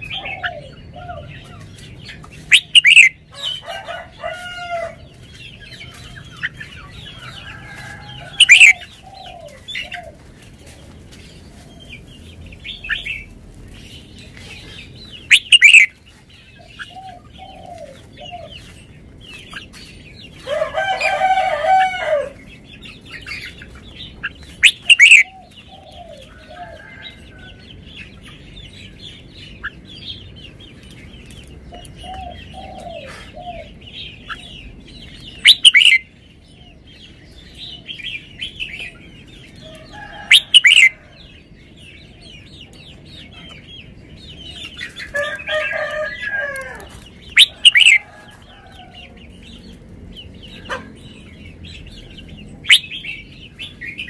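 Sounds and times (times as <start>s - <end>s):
high chirping: 0.0s - 3.7s, 11.9s - 20.0s, 23.0s - 25.6s, 33.6s - 36.2s
rooster crowing: 2.8s - 5.1s, 6.9s - 10.1s, 20.4s - 22.4s, 26.1s - 27.8s, 39.6s - 41.3s, 45.1s - 49.4s.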